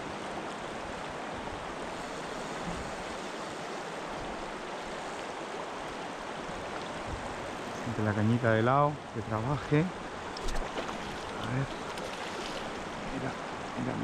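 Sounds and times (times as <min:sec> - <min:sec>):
river water rushing over stones: 0:09.2 - 0:14.0.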